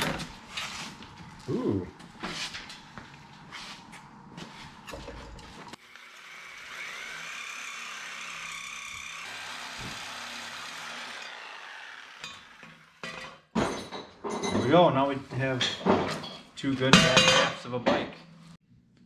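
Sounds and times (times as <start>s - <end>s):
reciprocating saw cutting metal tube: 5.7s - 13.3s.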